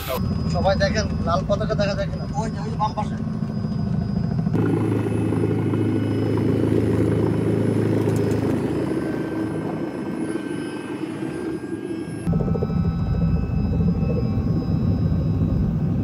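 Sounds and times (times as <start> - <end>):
helicopter engine and rotor drone: 0.0 - 16.0.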